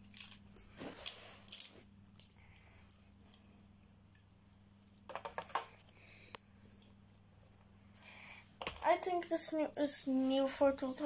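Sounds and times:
faint low hum: 0.0 - 11.0
lego pieces clicking and rustling: 1.0 - 3.4.

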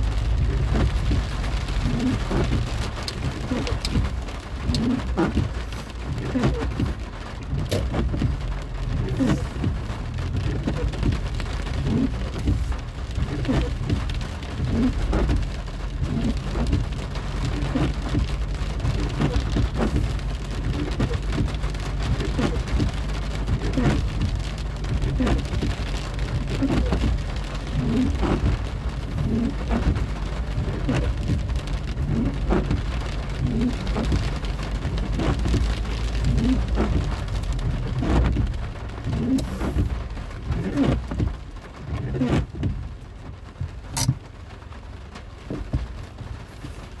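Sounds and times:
low rumble of moving car: 0.0 - 47.0
rain drops on car roof: 0.0 - 47.0.

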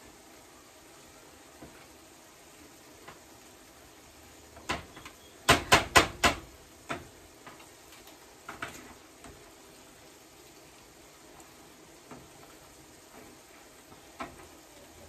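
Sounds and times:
potato masher knocking on metal pot: 5.5 - 7.0.

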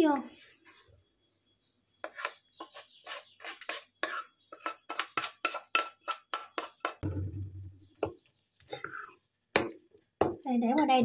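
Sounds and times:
wooden spatula scraping a pan: 2.0 - 7.0.

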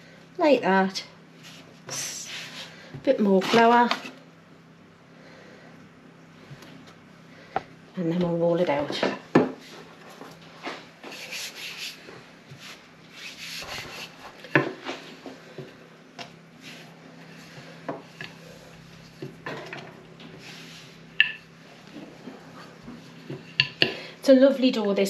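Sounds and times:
hands rubbing dough: 9.6 - 15.1.

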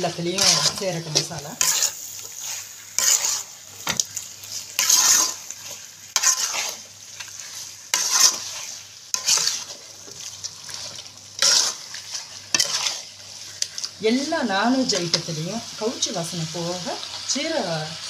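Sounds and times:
faint frying sizzle: 0.0 - 18.0
spatula scraping a metal pan: 0.1 - 13.9.

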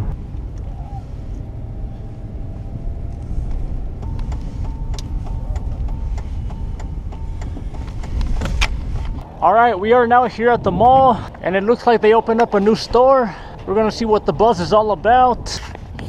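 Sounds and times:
car engine and road noise: 0.0 - 16.0
regular ticking: 3.1 - 15.3.

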